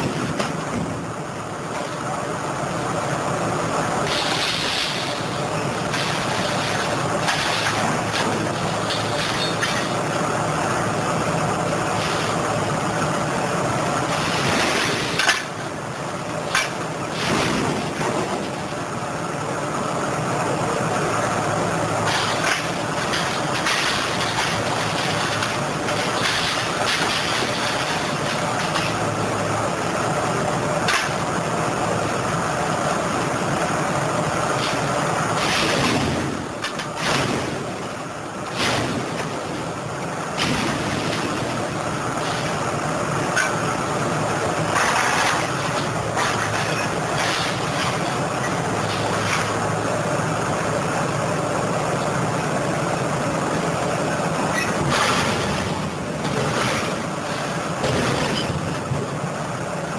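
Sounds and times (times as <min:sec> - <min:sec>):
diesel engine and hydraulics droning: 0:00.0 - 0:59.9
scrap metal clanking: 0:04.0 - 0:10.2, 0:22.0 - 0:29.2, 0:44.7 - 0:49.6, 0:54.5 - 0:58.9.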